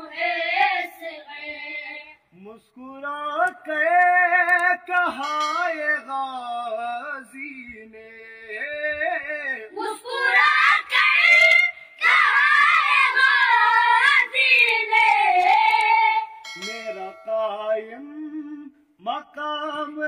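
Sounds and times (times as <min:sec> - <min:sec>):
boys singing together: 0:00.0 - 0:02.2, 0:08.6 - 0:17.8
man singing: 0:02.3 - 0:09.8, 0:16.6 - 0:20.0.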